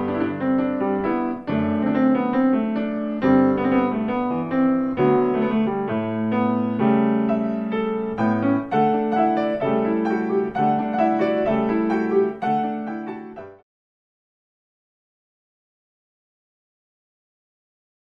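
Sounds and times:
piano music: 0.0s - 13.6s.

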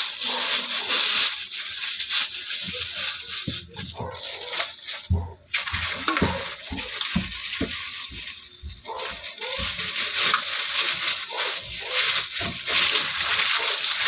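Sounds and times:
plastic bag crinkling: 0.0s - 14.0s
water sloshing in a sink: 3.7s - 14.0s.

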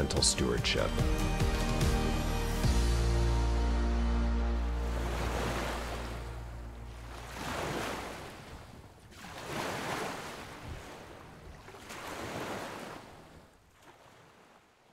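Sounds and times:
background music: 0.0s - 7.0s
ocean waves washing in: 3.5s - 14.9s.

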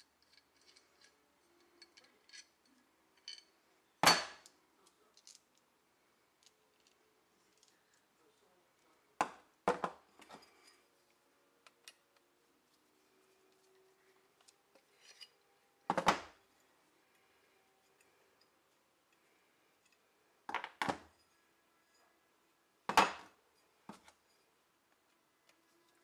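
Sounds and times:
metal parts knocking on workbench: 15.9s - 16.4s.

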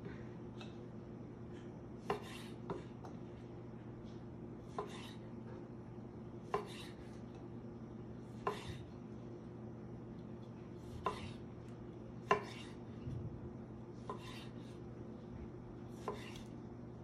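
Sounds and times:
steady low hum: 0.0s - 17.0s
knife cutting on wooden board: 2.0s - 3.1s, 4.7s - 5.3s, 6.4s - 7.2s, 8.3s - 8.9s, 10.8s - 11.5s, 12.2s - 12.8s, 14.0s - 14.8s, 15.9s - 16.5s.

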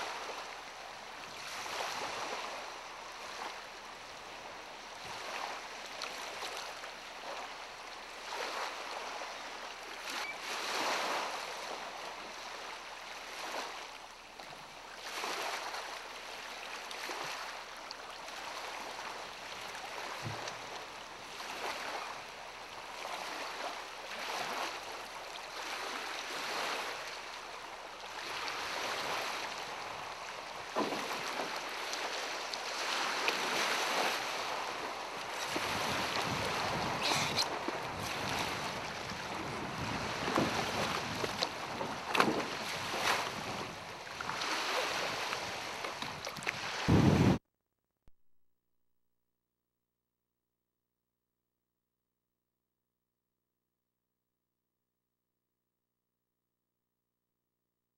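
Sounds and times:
lake waves washing on gravel shore: 28.2s - 47.4s.

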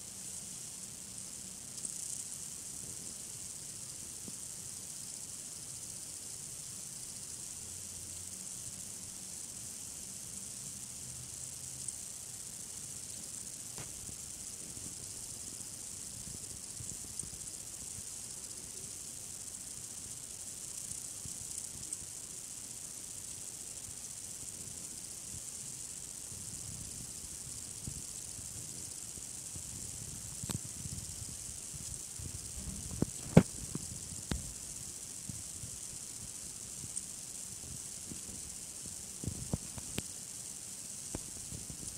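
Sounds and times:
faint ticks: 0.0s - 41.9s
high-pitched hiss: 0.0s - 41.9s.

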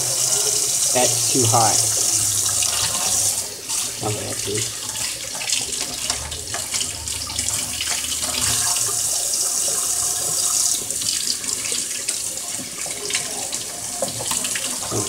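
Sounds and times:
faucet running into steel sink: 0.0s - 15.0s.

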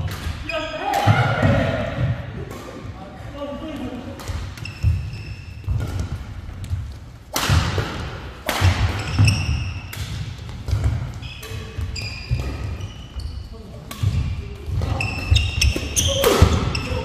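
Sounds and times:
rackets striking shuttlecock: 3.8s - 13.2s, 13.8s - 17.0s
shoes squeaking on court: 4.3s - 7.1s, 8.9s - 17.0s.

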